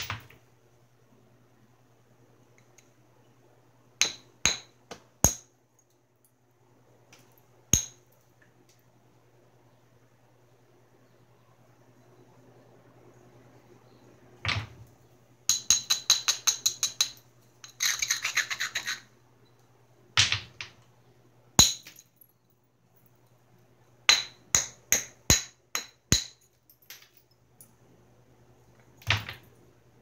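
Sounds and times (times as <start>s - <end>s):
hammerstone striking flint: 7.8s - 8.0s
stone grating rub: 17.6s - 19.1s.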